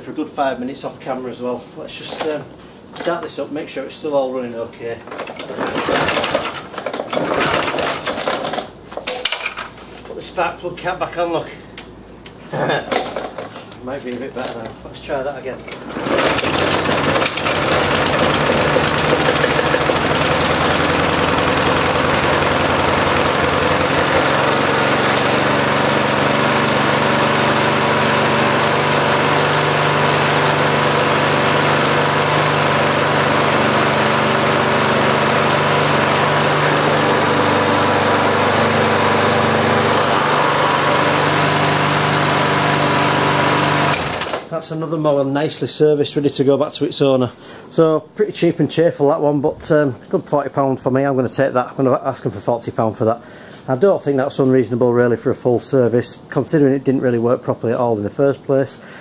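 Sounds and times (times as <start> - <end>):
lawnmower engine pull-start: 5.1 - 9.6, 15.7 - 44.6
lawnmower engine running: 5.4 - 8.5, 15.8 - 44.5.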